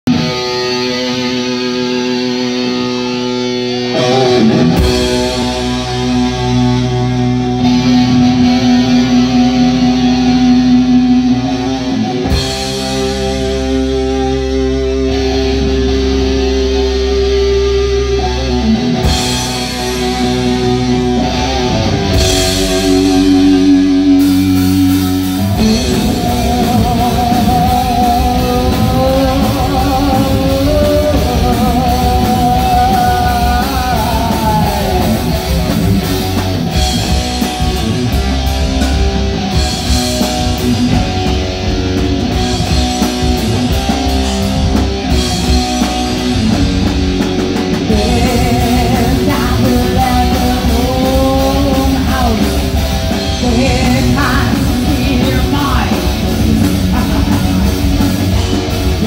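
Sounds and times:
bass guitar: 0:00.0 - 0:59.0
heavy rock band playing: 0:00.0 - 0:59.0.

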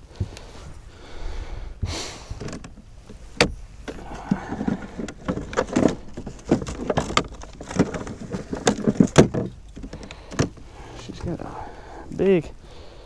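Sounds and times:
rummaging handling noises: 0:02.4 - 0:12.4.

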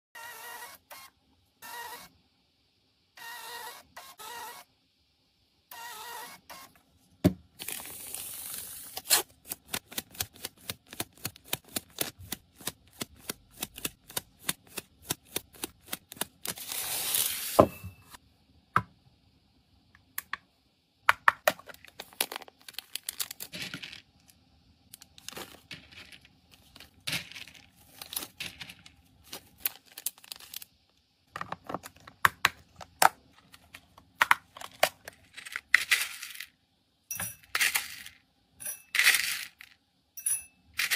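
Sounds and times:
paper tearing and rustling: 0:07.6 - 0:17.6, 0:25.2 - 0:30.7
plastic rustling: 0:21.6 - 0:24.2, 0:24.9 - 0:30.8.

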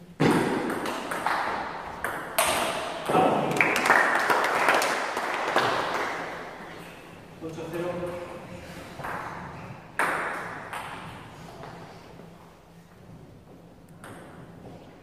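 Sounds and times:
table tennis ball hitting bats: 0:00.0 - 0:06.4, 0:09.0 - 0:11.7, 0:13.9 - 0:14.8
ball bouncing on table: 0:14.0 - 0:14.8.

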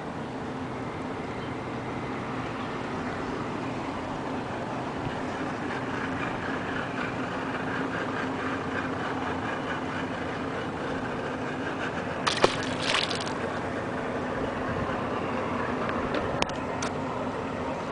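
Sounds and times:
engine-like hum: 0:00.0 - 0:17.9
fish splashing into water: 0:12.2 - 0:13.5.

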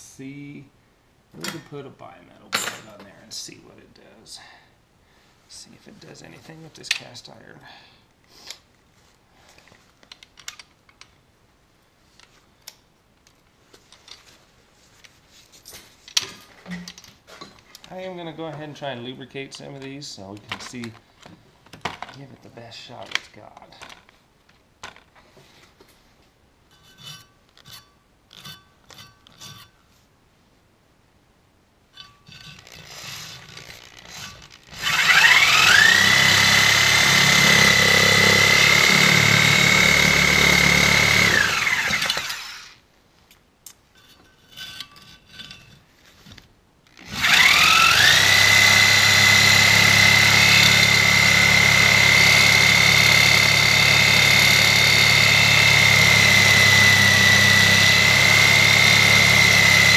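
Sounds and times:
reciprocating saw cutting metal: 0:32.0 - 0:42.8, 0:47.0 - 0:59.9.

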